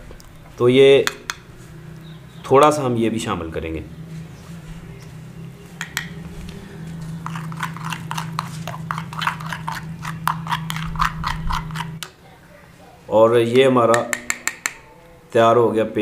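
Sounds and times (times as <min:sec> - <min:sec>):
steady low hum: 0:00.0 - 0:16.0
spoon scraping clay bowl: 0:05.8 - 0:12.1.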